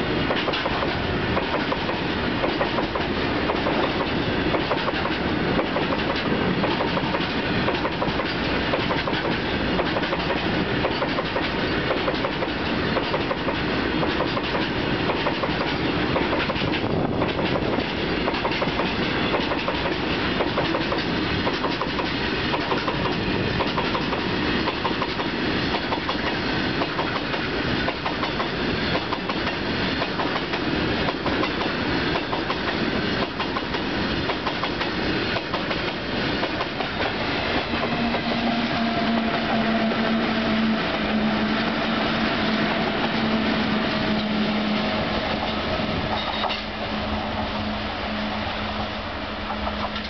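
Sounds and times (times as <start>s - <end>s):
locomotive hum: 0.0s - 50.0s
train wheels clattering over rail joints: 0.2s - 38.4s.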